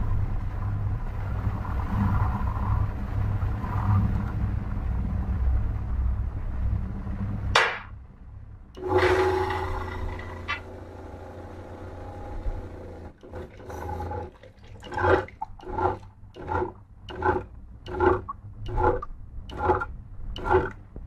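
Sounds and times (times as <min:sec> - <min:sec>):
tap water pouring into tank: 0:13.2 - 0:18.8.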